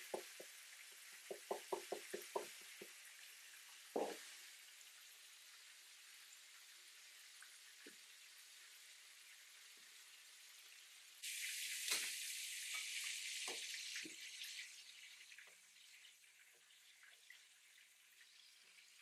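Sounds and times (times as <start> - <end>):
seasoning shaker tapping: 0.0 - 0.6, 1.3 - 3.0
fish sizzling in a pan: 0.0 - 19.0.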